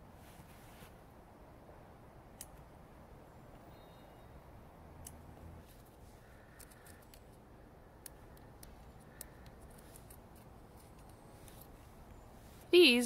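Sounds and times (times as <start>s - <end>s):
dry seed heads crackling: 5.0s - 13.0s.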